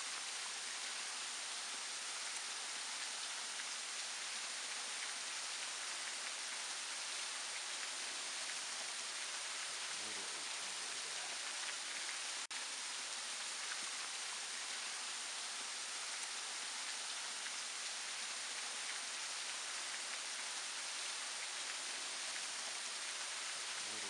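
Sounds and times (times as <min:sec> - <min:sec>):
waterfall splashing over rock: 0:00.0 - 0:24.0.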